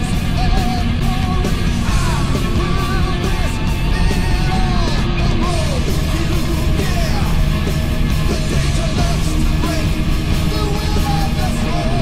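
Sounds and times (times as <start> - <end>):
person singing: 0.0 - 7.6, 8.2 - 12.0
heavy rock music: 0.0 - 12.0.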